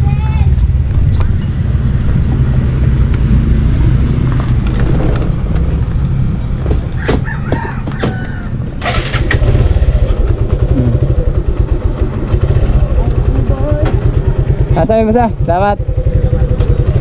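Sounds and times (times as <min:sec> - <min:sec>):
chickens clucking and squawking: 0:07.0 - 0:09.1
motorcycle engine idling: 0:08.4 - 0:17.0.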